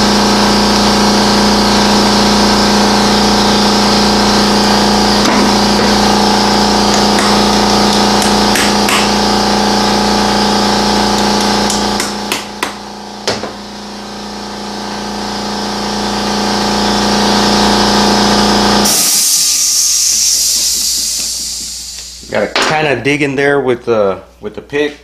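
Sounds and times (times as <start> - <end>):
mechanical hum: 0.0 - 25.0
loud high hiss: 18.8 - 22.6.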